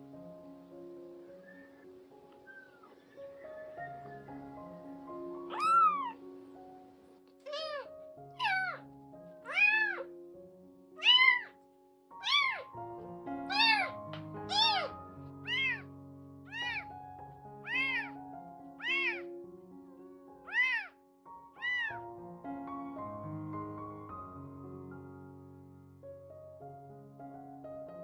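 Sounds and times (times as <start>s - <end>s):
soft background music: 0.0s - 28.0s
kitten mewing: 2.4s - 3.0s, 5.5s - 6.2s, 7.4s - 10.1s, 11.0s - 11.6s, 12.2s - 12.7s, 13.5s - 15.9s, 16.5s - 17.0s, 17.6s - 18.2s, 18.8s - 19.3s, 20.5s - 21.0s, 21.6s - 22.0s.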